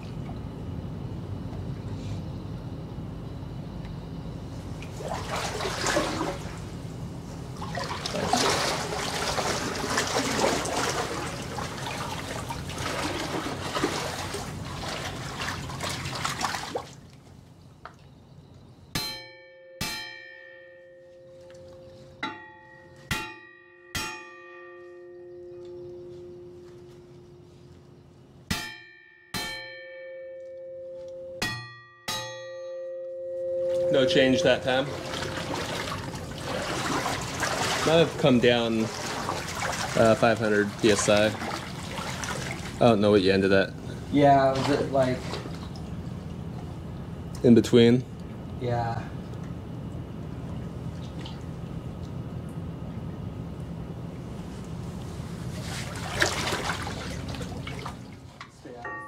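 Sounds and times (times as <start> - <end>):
ringing metal strikes: 18.9 - 27.3, 28.5 - 35.0, 58.7 - 59.0
rushing splashing noise: 34.9 - 40.2.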